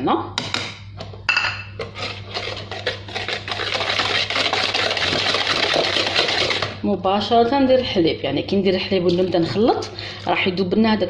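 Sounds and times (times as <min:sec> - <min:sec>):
whisk beating in plastic bowl: 0:01.8 - 0:06.8.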